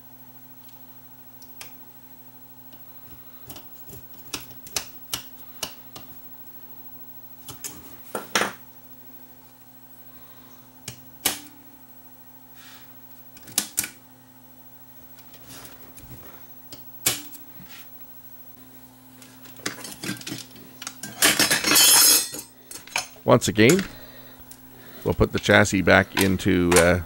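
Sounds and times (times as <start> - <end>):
faint steady hum: 0.0 - 27.0
cassette deck parts clicking: 23.6 - 27.0.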